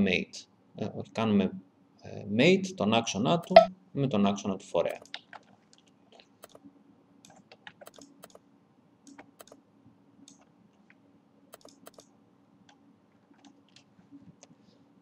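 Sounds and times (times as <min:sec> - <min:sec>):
low steady hum: 0:00.0 - 0:15.0
computer keyboard and mouse clicks: 0:04.9 - 0:06.6, 0:07.2 - 0:08.4, 0:09.1 - 0:09.6, 0:11.5 - 0:12.1, 0:12.7 - 0:13.9.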